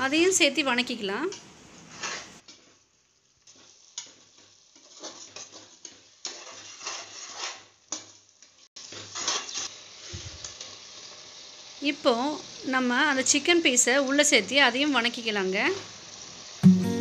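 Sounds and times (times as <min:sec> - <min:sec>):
oil sizzling: 0:00.0 - 0:17.0
ladle stirring and scraping pot: 0:01.8 - 0:02.6, 0:04.7 - 0:08.2.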